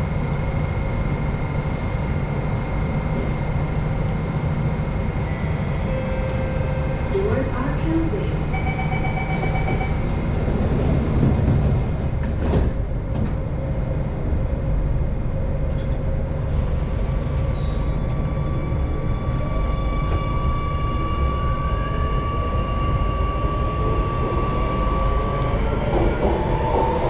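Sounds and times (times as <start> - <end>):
train rumble: 0.0 - 27.0
train doors sliding shut: 9.6 - 13.5.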